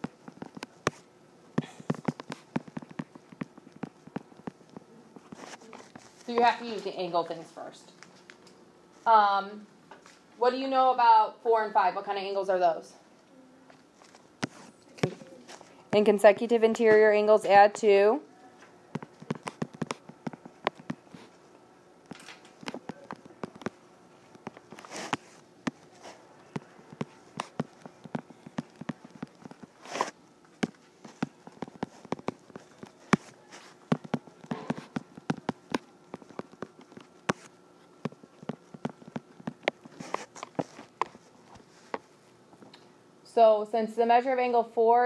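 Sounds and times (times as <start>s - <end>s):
stylus tapping on tablet screen: 1.6s - 4.9s, 19.0s - 21.2s, 30.6s - 33.3s, 33.9s - 41.2s.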